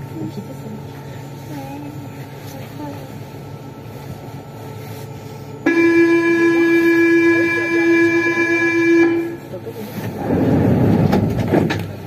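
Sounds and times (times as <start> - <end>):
train horn tone: 5.6 - 9.5.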